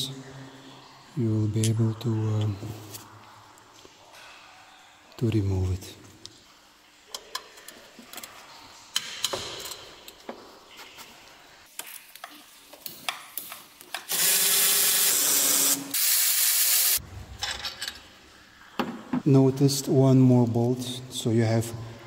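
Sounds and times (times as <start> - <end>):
power tool bursts: 14.1 - 17.0.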